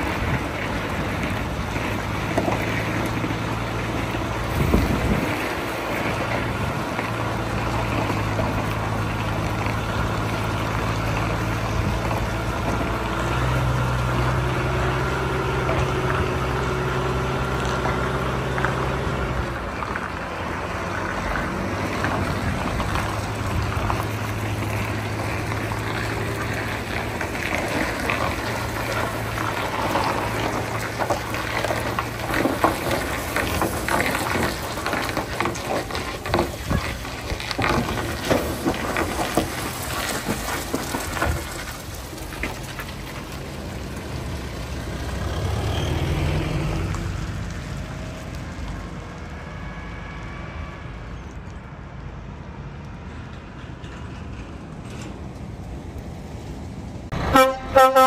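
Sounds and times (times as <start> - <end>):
diesel truck engine droning: 0.0 - 58.0
wind on microphone: 4.4 - 5.8.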